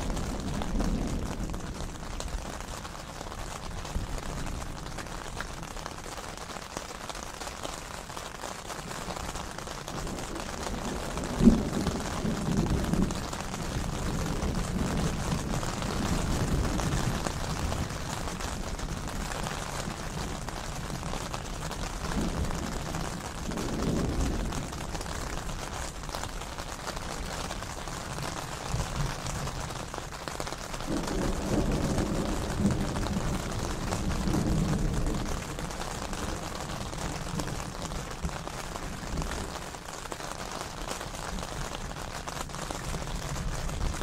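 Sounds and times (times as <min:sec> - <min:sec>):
thunder rumbling: 0:00.0 - 0:05.7, 0:09.7 - 0:30.1, 0:30.7 - 0:44.0
steady rain: 0:00.0 - 0:44.0
sharp thunder clap: 0:09.9 - 0:19.2, 0:22.0 - 0:24.9, 0:30.8 - 0:39.6.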